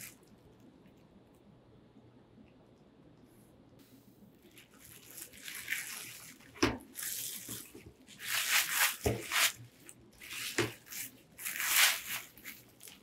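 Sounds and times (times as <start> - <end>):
bubble wrap crinkling: 4.4 - 13.0.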